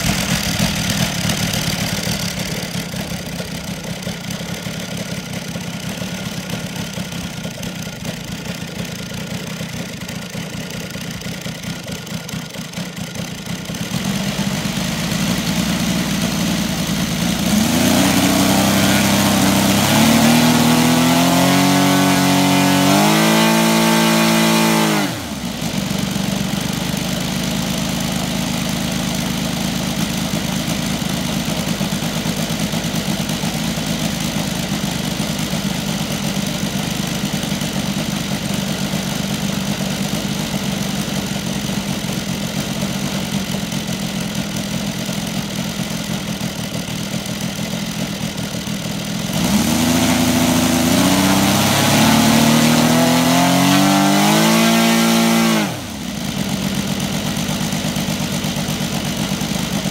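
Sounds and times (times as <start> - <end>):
radial engine revving: 13.9 - 26.7, 49.3 - 57.2.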